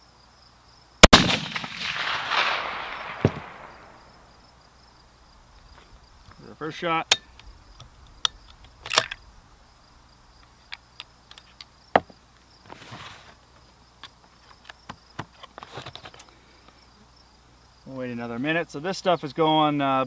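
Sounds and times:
insects trilling: 1.6 - 20.0
rifle bolt metallic clicks: 7.0 - 9.3
cardboard box rustling: 12.7 - 13.4.

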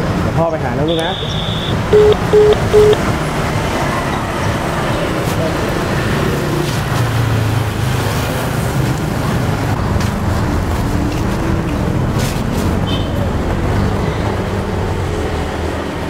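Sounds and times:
road traffic rumble: 0.0 - 16.0
high chirp: 0.9 - 3.0.

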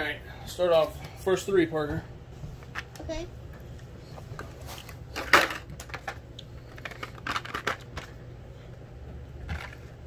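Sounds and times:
steady low hum: 0.0 - 10.0
plastic packaging crackling: 4.7 - 8.2.

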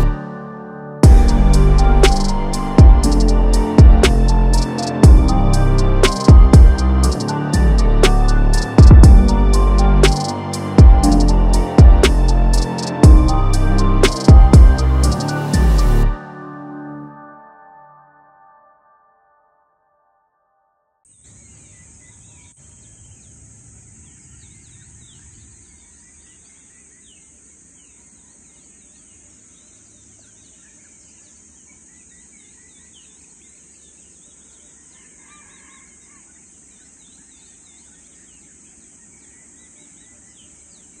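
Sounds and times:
low rumble: 1.0 - 10.0
steady high-pitched hiss: 1.0 - 13.1, 21.1 - 41.0
birds chirping and calling: 14.1 - 15.9.

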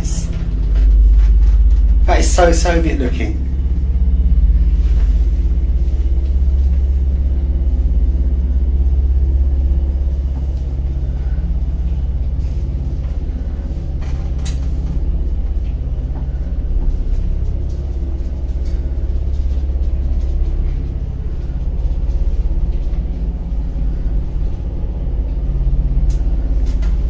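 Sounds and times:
lift rumble and hum: 0.0 - 27.0.

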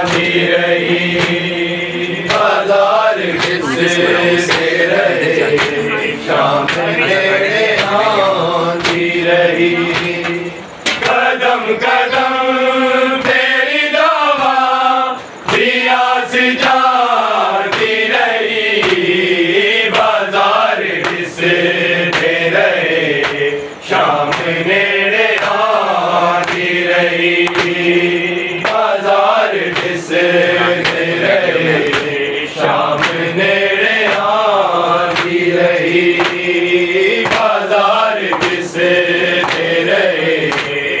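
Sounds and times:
men chanting together: 0.0 - 41.0
hands slapping chests: 33.0 - 33.2, 39.4 - 39.7, 40.4 - 40.8.

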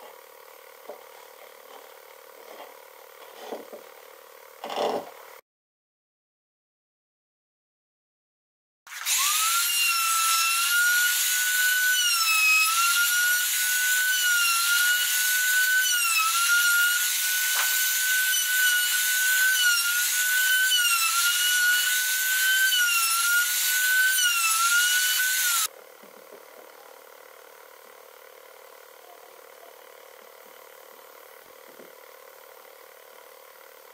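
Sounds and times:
router bit cutting wood: 8.9 - 25.7
router whining: 8.9 - 25.7.

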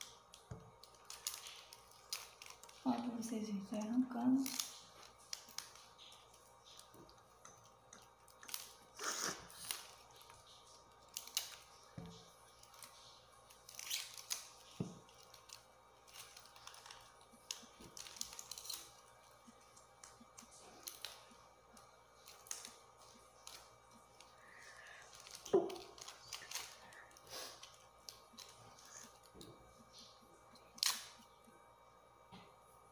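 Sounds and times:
dry leaves tearing: 12.5 - 19.0, 22.2 - 29.2.

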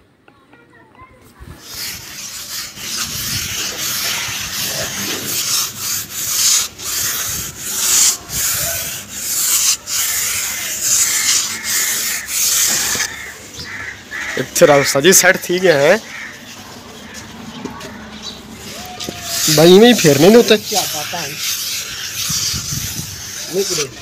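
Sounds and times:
float scraping wet plaster: 1.5 - 15.3, 18.6 - 24.0.

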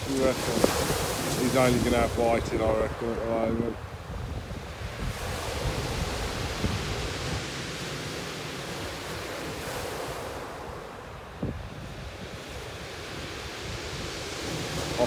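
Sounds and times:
surf breaking on shingle beach: 0.0 - 15.0
wind buffeting microphone: 0.0 - 15.0.

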